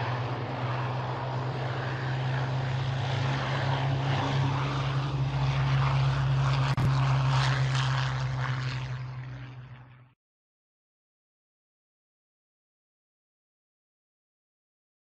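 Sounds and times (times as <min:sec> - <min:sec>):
piston aircraft engines droning: 0:00.0 - 0:10.2.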